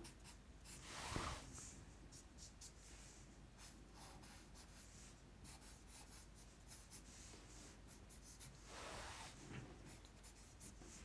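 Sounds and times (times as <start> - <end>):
marker scratching on paper: 3.6 - 8.6, 9.9 - 11.0.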